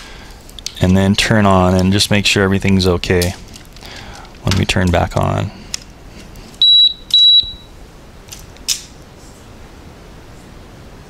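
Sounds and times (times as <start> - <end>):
short high electronic beeps: 6.6 - 7.7.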